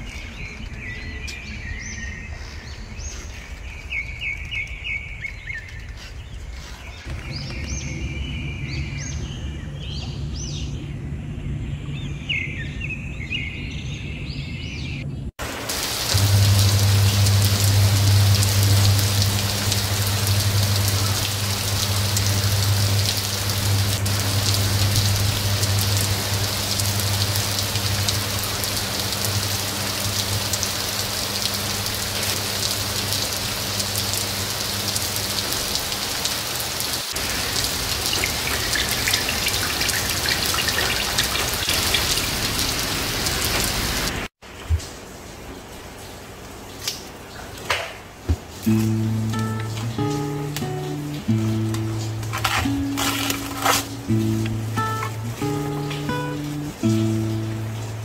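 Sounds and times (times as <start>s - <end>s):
heavy rain on glass: 15.4s - 58.0s
steady low hum: 15.8s - 35.2s.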